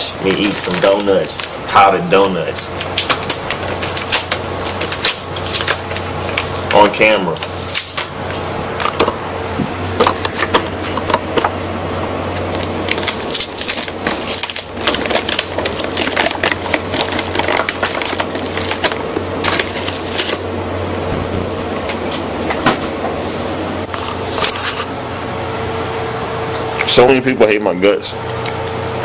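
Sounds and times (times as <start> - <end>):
steady low hum: 0.0 - 29.0
plastic package crinkling: 0.3 - 1.6, 2.7 - 8.1, 12.4 - 20.5.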